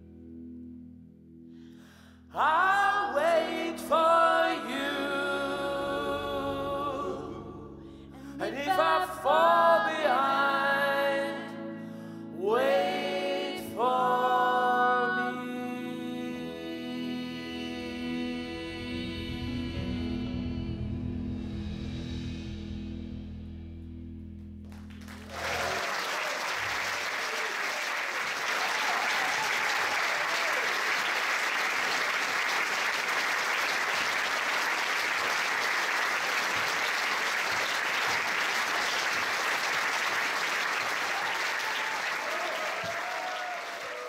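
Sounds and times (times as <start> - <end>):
live band chord: 18.4 - 25.4
audience applause: 24.7 - 44.0
audience whoops and cheers: 25.1 - 44.0.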